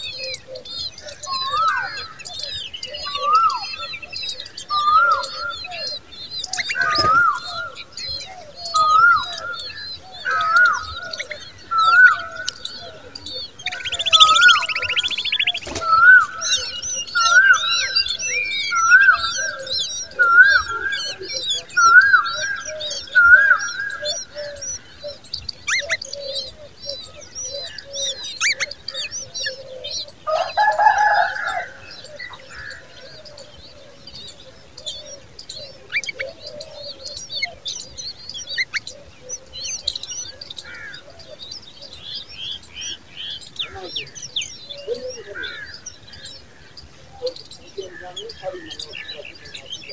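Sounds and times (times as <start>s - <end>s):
nestlings chirping: 0.0s - 49.9s
harsh burst of bird calls: 1.1s - 26.1s.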